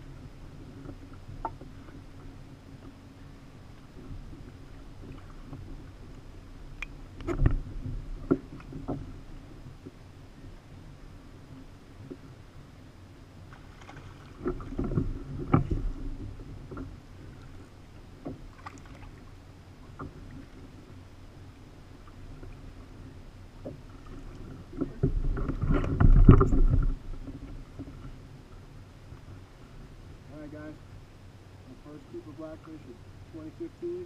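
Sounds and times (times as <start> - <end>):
water splashing: 13.5 - 16.1, 18.3 - 20.6
bumps and knocks on kayak: 24.6 - 28.2.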